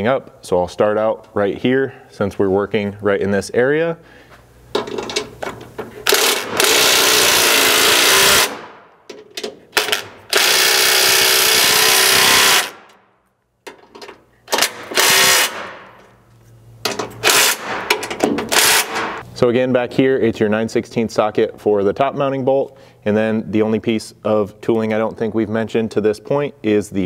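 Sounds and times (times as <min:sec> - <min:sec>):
impact wrench hammering bolts: 0:04.7 - 0:13.0, 0:13.6 - 0:16.1, 0:16.8 - 0:19.2.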